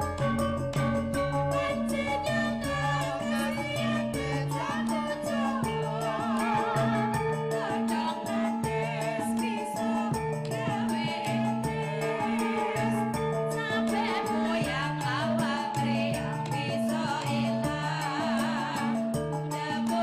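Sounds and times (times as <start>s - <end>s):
gamelan music with keyboard: 0.0s - 20.0s
women singing: 0.0s - 20.0s.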